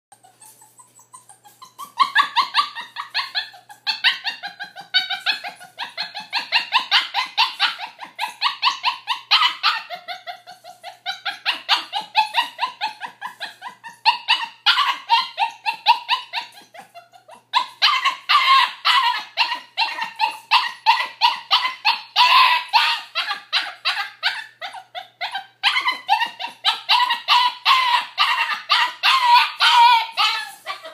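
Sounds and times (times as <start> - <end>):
puppy barking and whining: 0.1 - 30.9.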